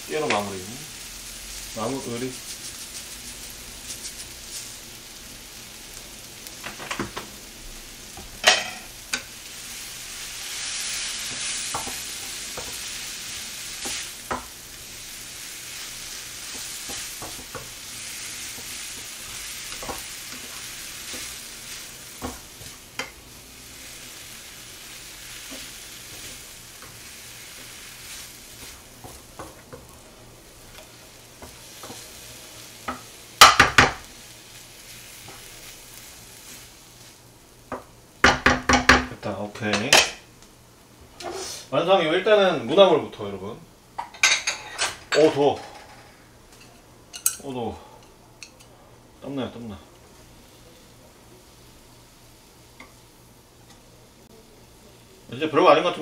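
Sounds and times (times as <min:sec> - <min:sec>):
vegetables sizzling in a frying pan: 0:00.0 - 0:56.0
spatula knocking against pan: 0:32.9 - 0:34.0, 0:37.7 - 0:39.1.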